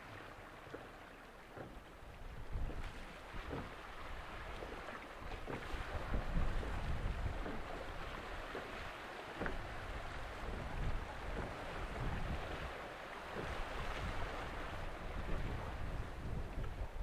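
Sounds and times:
wind gusting on microphone: 0:05.7 - 0:08.0, 0:09.9 - 0:12.8, 0:13.4 - 0:17.0.

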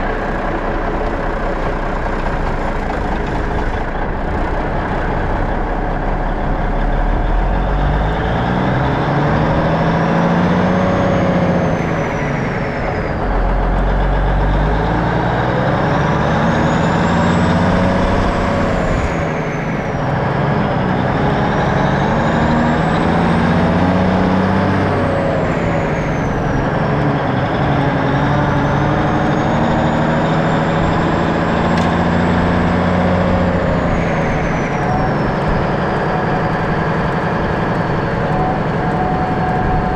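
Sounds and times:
diesel truck engine revving: 0:00.0 - 0:39.9
high engine whistle: 0:27.8 - 0:39.9.

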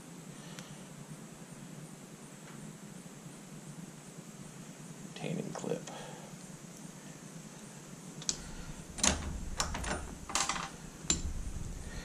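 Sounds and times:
sharp metal clicks and clinks: 0:08.2 - 0:11.4.

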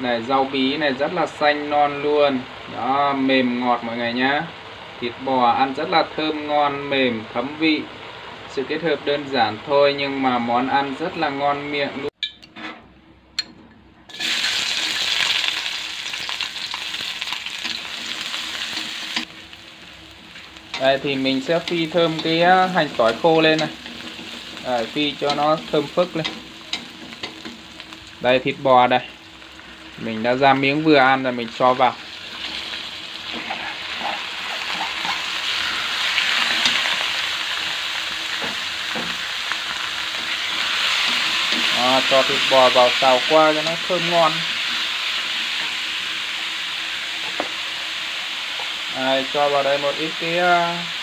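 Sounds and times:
garlic sizzling in hot oil: 0:14.1 - 0:51.0.

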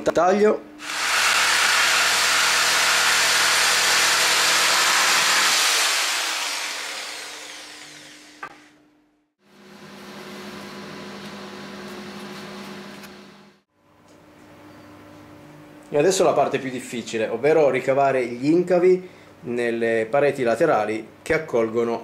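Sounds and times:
electric jigsaw cutting wood: 0:00.8 - 0:08.7.

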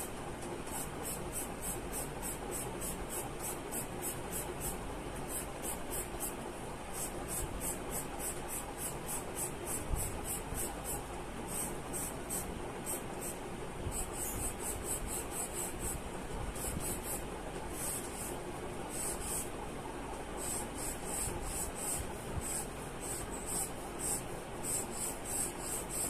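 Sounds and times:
pencil scratching on paper: 0:07.0 - 0:16.0, 0:16.6 - 0:17.2, 0:17.8 - 0:19.5, 0:20.4 - 0:26.0.

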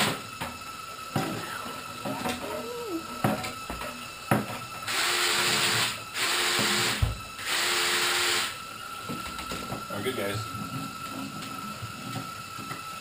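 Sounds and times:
cordless drill motor whirring: 0:04.9 - 0:08.6.

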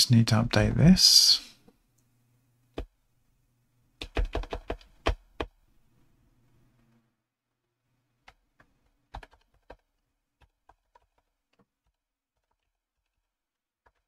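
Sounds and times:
typing on computer keyboard: 0:04.0 - 0:05.5, 0:08.3 - 0:14.0.

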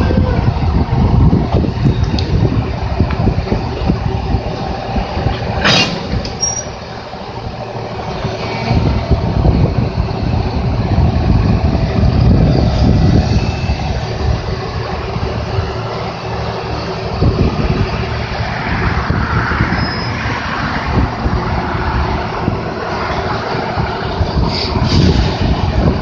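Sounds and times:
diesel locomotive engine running: 0:00.0 - 0:26.0
steel wheels rolling on rails: 0:00.0 - 0:26.0
brief high squeak: 0:05.7 - 0:06.8, 0:19.8 - 0:20.2.

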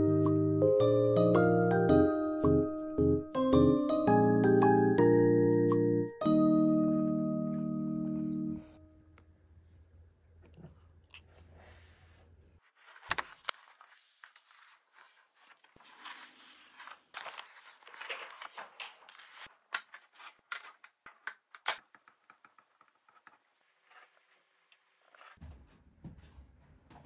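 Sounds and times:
paper pages rustling: 0:12.6 - 0:25.4.

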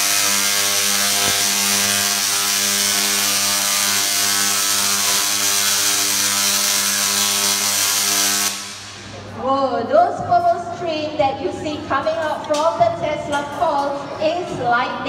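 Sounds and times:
tesla coil electric buzz: 0:00.0 - 0:09.4.

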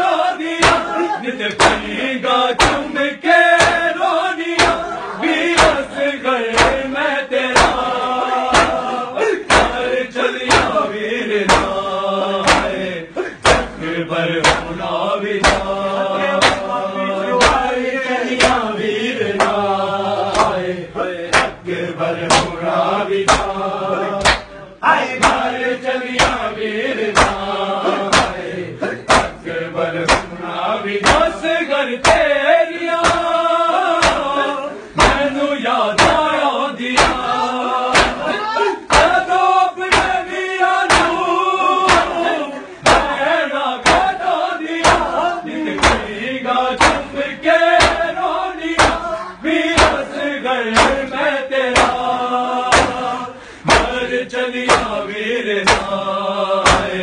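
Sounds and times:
men chanting a lament: 0:00.0 - 0:57.0
hands slapping chests: 0:00.5 - 0:02.0, 0:02.6 - 0:02.9, 0:03.5 - 0:04.0, 0:04.6 - 0:04.9, 0:05.5 - 0:05.9, 0:06.5 - 0:07.0, 0:07.6 - 0:09.9, 0:10.5 - 0:10.8, 0:11.4 - 0:11.8, 0:12.4 - 0:13.8, 0:14.4 - 0:15.8, 0:16.4 - 0:16.8, 0:17.4 - 0:18.7, 0:19.4 - 0:19.6, 0:20.2 - 0:20.7, 0:21.3 - 0:21.6, 0:22.3 - 0:22.6, 0:23.2 - 0:24.6, 0:25.2 - 0:26.5, 0:27.1 - 0:29.4, 0:30.0 - 0:30.4, 0:31.0 - 0:31.4, 0:32.0 - 0:34.4, 0:35.0 - 0:35.3, 0:36.0 - 0:36.3, 0:36.9 - 0:41.2, 0:41.9 - 0:43.2, 0:43.8 - 0:46.2, 0:46.8 - 0:47.1, 0:47.8 - 0:49.2, 0:49.8 - 0:51.1, 0:51.7 - 0:52.1, 0:52.7 - 0:53.1, 0:53.7 - 0:55.0, 0:55.6 - 0:56.0, 0:56.6 - 0:57.0.

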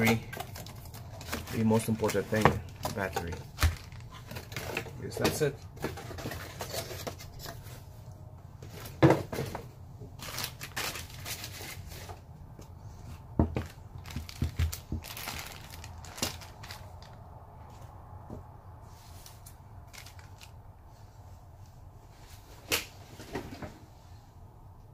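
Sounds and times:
plastic bags crinkling: 0:00.0 - 0:05.5, 0:10.2 - 0:12.2, 0:13.6 - 0:17.2, 0:19.9 - 0:20.5
items knocking when set down: 0:08.8 - 0:09.7.

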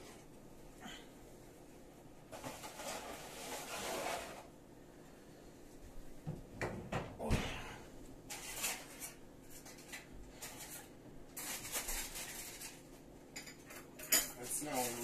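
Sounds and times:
scraping and rustling: 0:02.2 - 0:04.6, 0:08.3 - 0:13.1, 0:14.4 - 0:15.0
kitchen knocks and clatters: 0:06.2 - 0:07.6, 0:08.3 - 0:15.0.

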